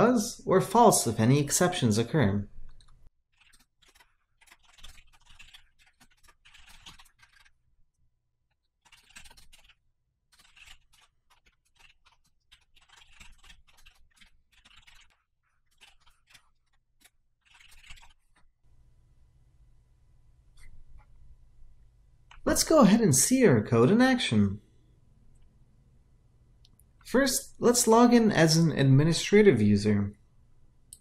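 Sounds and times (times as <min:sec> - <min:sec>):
faint keyboard typing: 0:02.6 - 0:07.6, 0:08.6 - 0:18.9.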